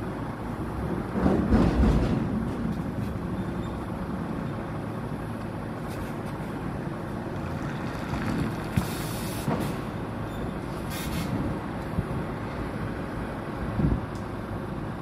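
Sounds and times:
diesel truck engine running: 0:00.0 - 0:15.0
compressed air hisses: 0:08.8 - 0:09.8.

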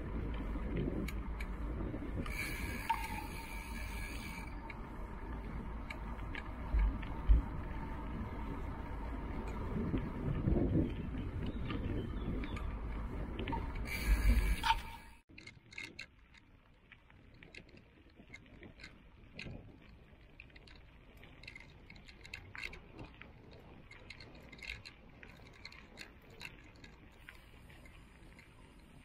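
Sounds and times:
wind noise on microphone: 0:00.0 - 0:15.2
bicycle tyres crackling on gravel: 0:00.0 - 0:29.0.

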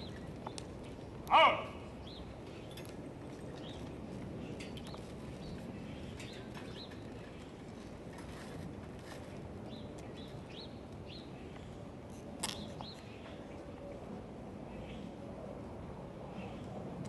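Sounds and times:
short loud call: 0:01.3 - 0:01.8.

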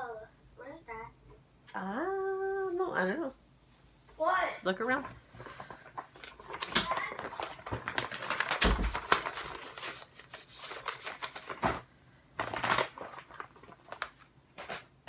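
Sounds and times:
objects rustling and clicking: 0:05.0 - 0:14.9.

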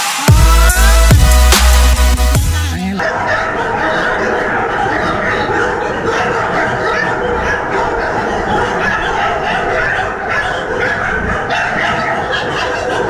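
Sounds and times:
many dogs barking and yelping: 0:02.9 - 0:13.0.

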